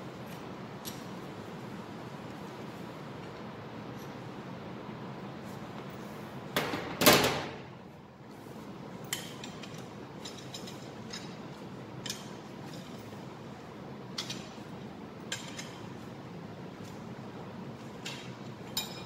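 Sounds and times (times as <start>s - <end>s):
metal clanks of wrench: 9.1s - 11.4s, 15.3s - 15.8s, 18.0s - 19.0s.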